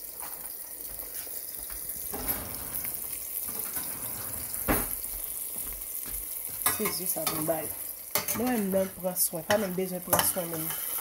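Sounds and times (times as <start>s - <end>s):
eggs sizzling in oil: 0.0s - 11.0s.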